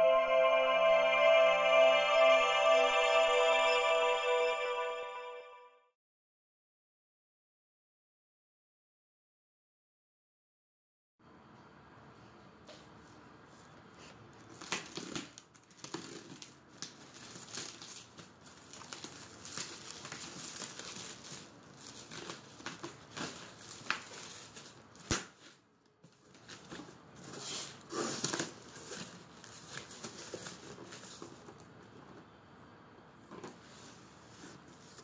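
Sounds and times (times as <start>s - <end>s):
plastic wrapping tearing and crumpling: 14.5s - 31.6s.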